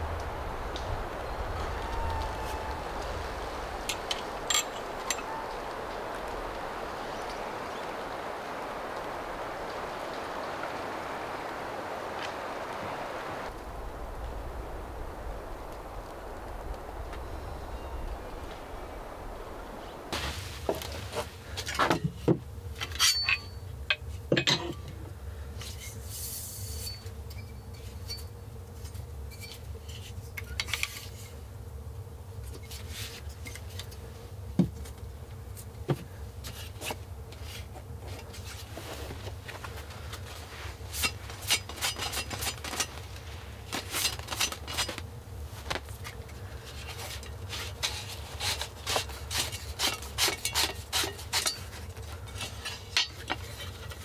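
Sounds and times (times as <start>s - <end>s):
steady low hum: 0.0s - 30.4s.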